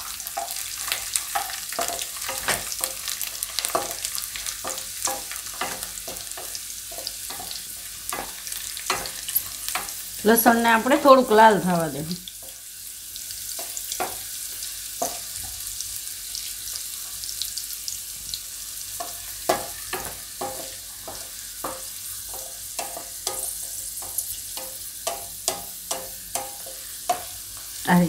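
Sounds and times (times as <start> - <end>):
spices sizzling in hot oil: 0.0 - 28.0
spatula knocking against pan: 3.6 - 10.0, 19.0 - 27.3.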